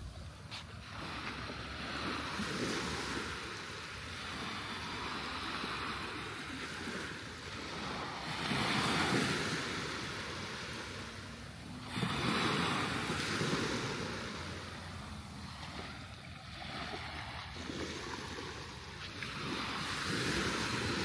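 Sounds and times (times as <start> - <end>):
small waves washing on sand: 0.0 - 21.0.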